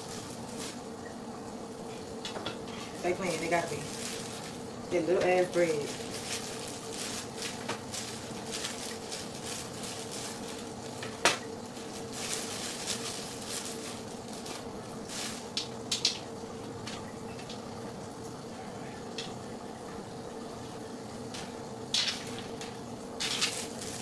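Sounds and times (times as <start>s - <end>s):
plastic bag crinkling: 0.0s - 0.9s, 2.8s - 16.3s, 22.0s - 24.0s
faint hum: 0.0s - 24.0s.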